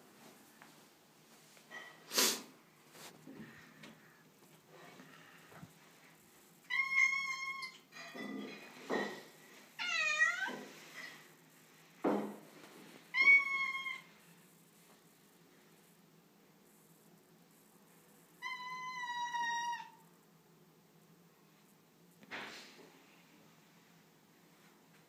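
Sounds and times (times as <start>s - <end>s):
cat meowing: 6.7s - 7.8s, 9.8s - 10.6s, 13.1s - 14.1s, 18.4s - 20.0s.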